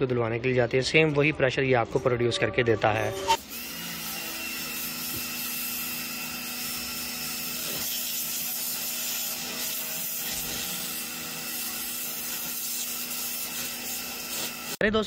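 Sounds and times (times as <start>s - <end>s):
pressure washer hum: 3.4s - 14.8s
pressure washer jet hissing: 3.4s - 14.8s.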